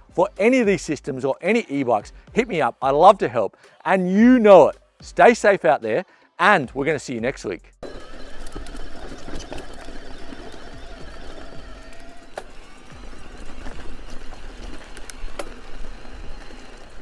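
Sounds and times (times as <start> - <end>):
bike clicks and knocks: 7.8 - 17.0
faint motor whine: 7.8 - 17.0
tyres crunching on gravel: 7.8 - 17.0.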